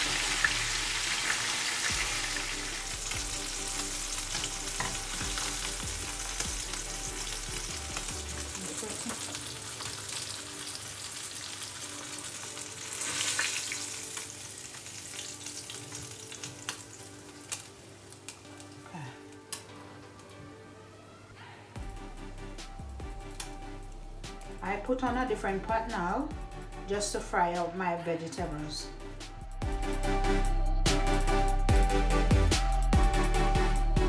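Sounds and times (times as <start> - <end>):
fish sizzling in hot oil: 0.0 - 18.8.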